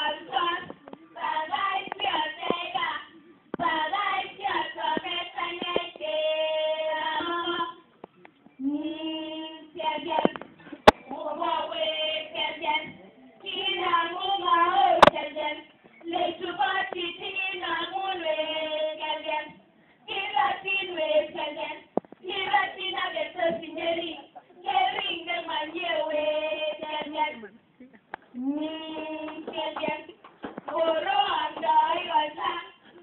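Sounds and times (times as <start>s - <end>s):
children singing in unison: 0.0s - 7.8s, 11.0s - 27.4s, 30.7s - 32.9s.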